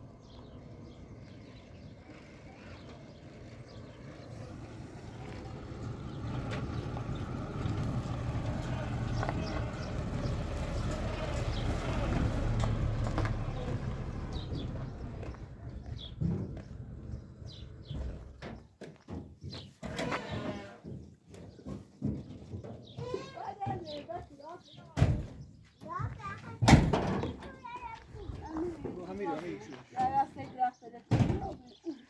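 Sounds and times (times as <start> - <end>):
pickup truck engine driving up: 2.4 - 18.4.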